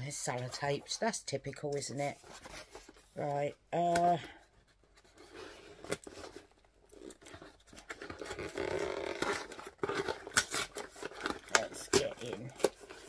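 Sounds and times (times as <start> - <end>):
tape scraping and tearing: 5.0 - 13.0.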